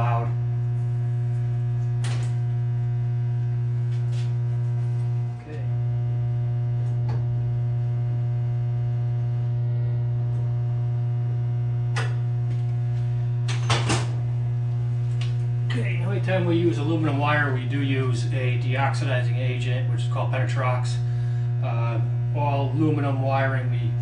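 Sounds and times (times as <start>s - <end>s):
transformer electrical hum: 0.0s - 24.0s.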